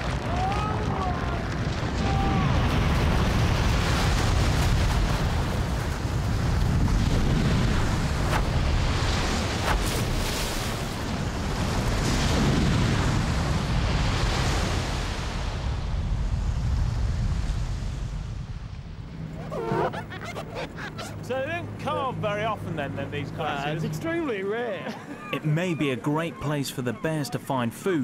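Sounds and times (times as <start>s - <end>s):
ice collapsing into sea: 0.0s - 11.2s
water crashing: 0.0s - 23.3s.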